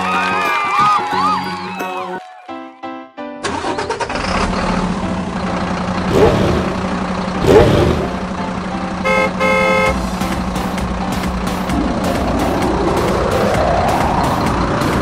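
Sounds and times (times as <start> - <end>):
car engine running: 4.0 - 15.0
car horn honking: 9.0 - 10.1.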